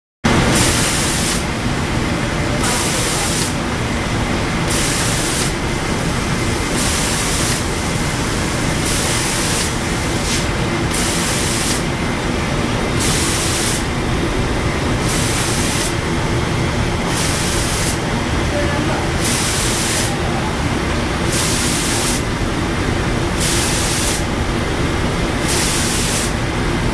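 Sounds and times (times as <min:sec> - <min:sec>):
steady machinery din: 0:00.3 - 0:26.9
spray guns hissing in bursts: 0:00.4 - 0:01.6, 0:02.6 - 0:03.8, 0:04.6 - 0:12.0, 0:12.9 - 0:14.0, 0:15.0 - 0:16.1, 0:17.0 - 0:18.1, 0:19.1 - 0:20.3, 0:21.2 - 0:22.4, 0:23.3 - 0:24.3, 0:25.4 - 0:26.4.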